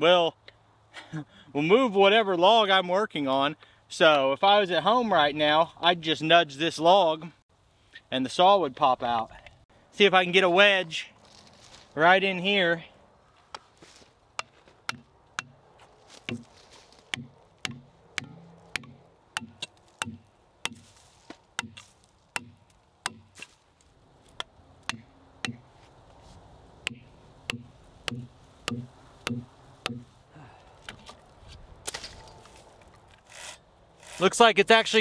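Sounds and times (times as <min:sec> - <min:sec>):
axe knocking plastic wedges: 0:14.4 - 0:15.6, 0:16.3 - 0:16.5, 0:17.1 - 0:20.8, 0:21.6 - 0:21.8, 0:22.4 - 0:23.5, 0:24.4 - 0:25.7, 0:26.9 - 0:30.1.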